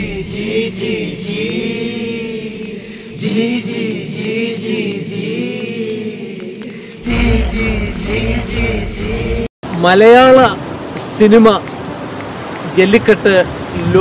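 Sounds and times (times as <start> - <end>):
voices chanting together: 0.0 - 9.5.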